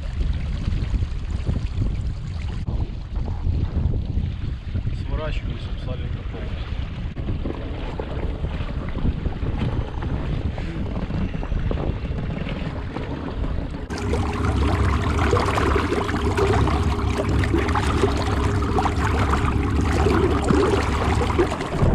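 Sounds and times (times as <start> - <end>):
water splashing against hull: 0.0 - 21.9
wind on microphone: 0.0 - 21.9
motor hum: 13.6 - 21.9.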